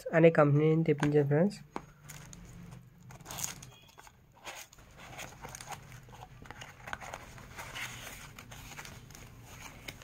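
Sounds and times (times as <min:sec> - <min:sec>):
cardboard box being opened: 0:03.1 - 0:10.0.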